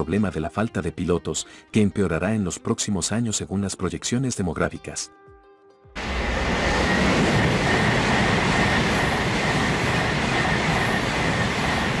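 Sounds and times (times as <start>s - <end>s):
faint high whine: 6.0s - 12.0s
train rushing past: 6.0s - 12.0s.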